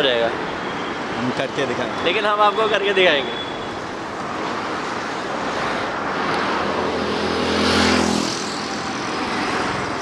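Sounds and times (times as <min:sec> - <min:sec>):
city road traffic: 0:00.0 - 0:10.0
vehicle engine passing close: 0:06.5 - 0:10.0.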